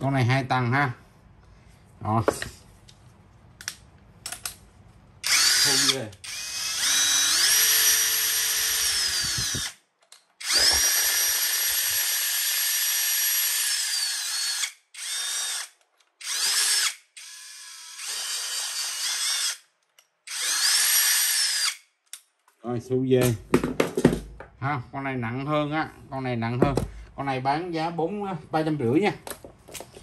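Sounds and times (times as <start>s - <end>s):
electric drill motor whining: 5.2s - 9.8s, 10.4s - 19.6s, 20.3s - 21.8s.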